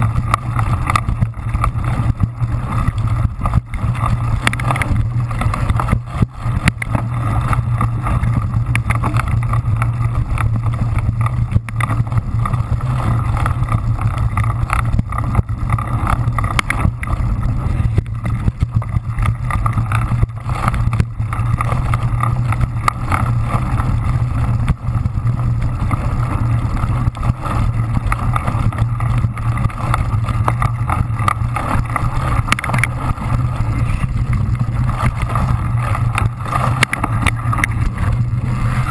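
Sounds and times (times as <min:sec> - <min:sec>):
bike knocking and clicking: 0:00.0 - 0:38.9
wind and tyres rumbling: 0:00.0 - 0:38.9.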